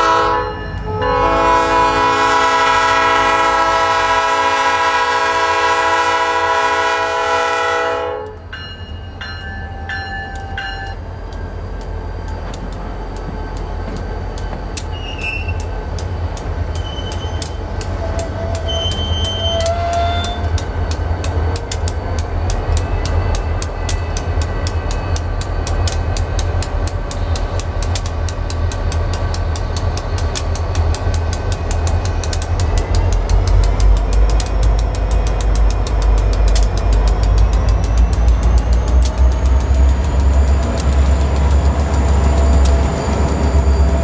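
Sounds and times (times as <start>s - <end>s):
freight train rumble: 0.0s - 44.0s
wheels clicking over rail joints: 8.3s - 44.0s
wheel squeals: 11.9s - 15.8s, 16.7s - 21.2s, 37.5s - 44.0s.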